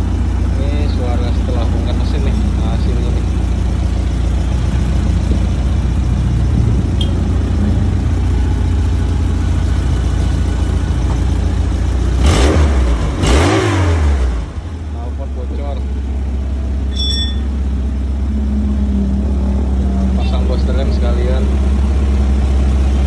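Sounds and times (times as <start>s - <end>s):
car engine idling: 0.0s - 23.0s
engine revving: 12.0s - 14.9s.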